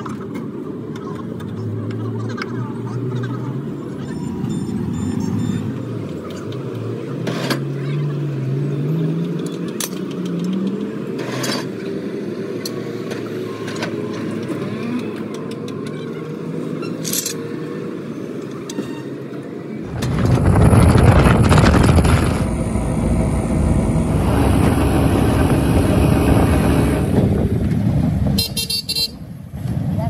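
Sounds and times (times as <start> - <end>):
traffic hum: 0.0 - 30.0
vehicle engine revving: 1.5 - 13.6, 19.8 - 30.0.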